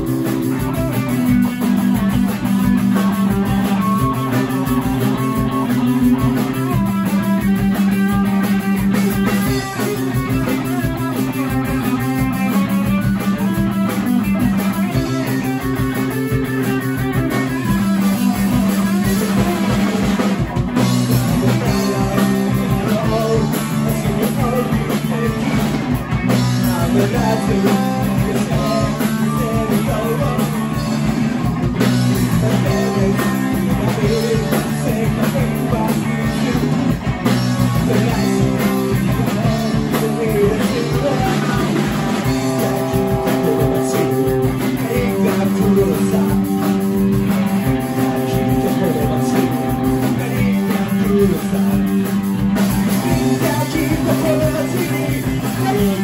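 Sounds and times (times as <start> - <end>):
drum kit: 0.0 - 56.0
electric guitars: 0.0 - 56.0.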